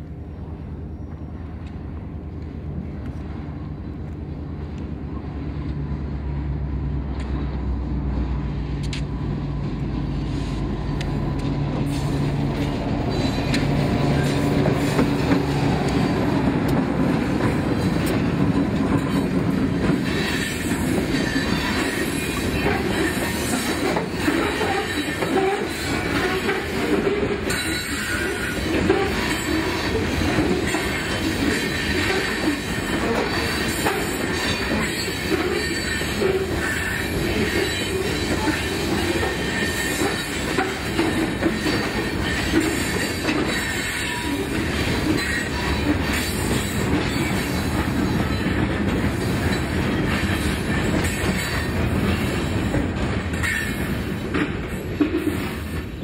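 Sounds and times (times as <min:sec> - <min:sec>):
freight train rolling past: 0:00.0 - 0:56.0
train wheels squealing: 0:00.2 - 0:01.6, 0:11.9 - 0:15.3, 0:20.0 - 0:56.0.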